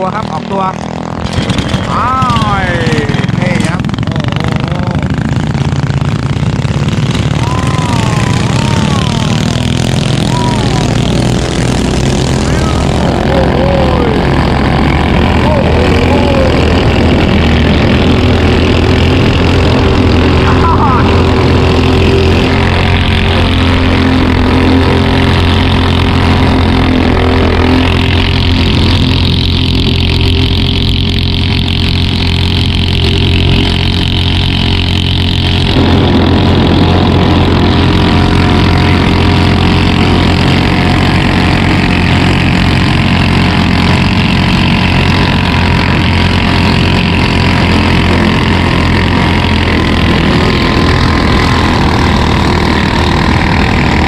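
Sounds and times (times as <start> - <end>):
boat engine running hard: 0.0 - 54.0.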